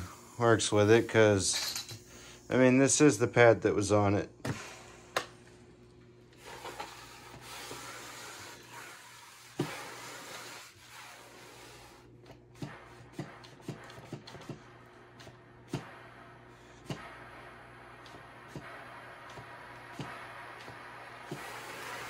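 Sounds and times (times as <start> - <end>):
mop pad rasping rub on floor: 6.4 - 12.0.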